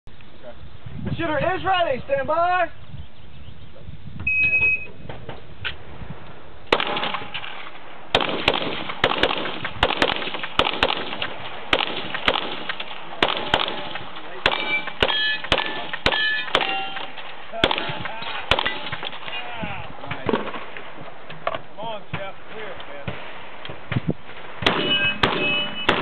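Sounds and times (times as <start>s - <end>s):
pistol shots: 6.7s - 19.3s, 24.3s - 26.0s
steel targets ringing: 14.5s - 17.2s, 24.7s - 26.0s.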